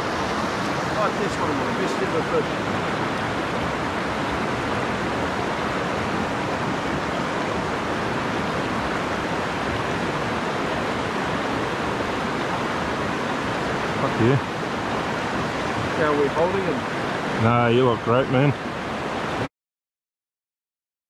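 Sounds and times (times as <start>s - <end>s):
mountain stream rushing over rapids: 0.0s - 19.5s.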